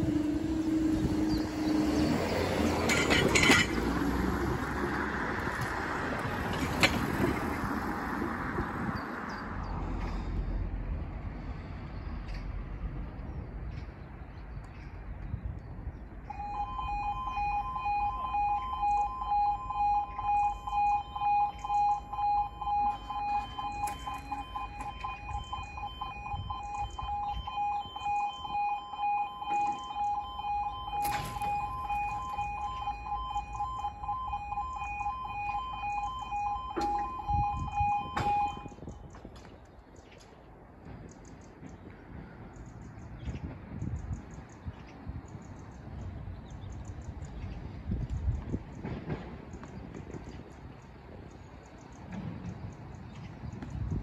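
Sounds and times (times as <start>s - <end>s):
two-tone level crossing alarm: 1.0s - 3.7s, 16.3s - 39.1s.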